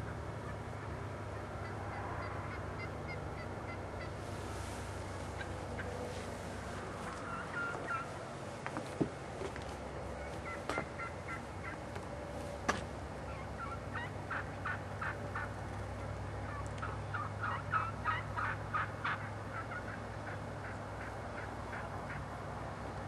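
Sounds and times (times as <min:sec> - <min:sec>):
wild turkeys calling: 0:00.0 - 0:08.4, 0:10.0 - 0:12.2, 0:13.1 - 0:22.4.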